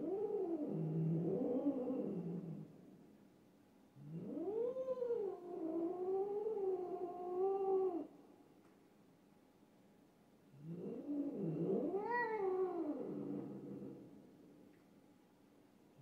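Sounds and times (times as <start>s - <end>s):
cat yowling: 11.5s - 13.8s.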